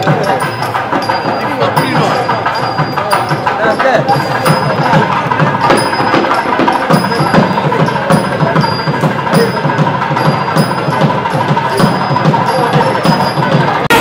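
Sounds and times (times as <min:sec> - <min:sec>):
drums beating fast: 0:00.0 - 0:14.0
ringing metal strike: 0:00.0 - 0:14.0.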